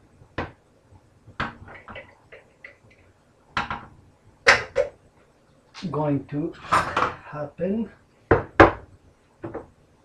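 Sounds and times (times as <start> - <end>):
cookware clattering on a stovetop: 1.4 - 2.9.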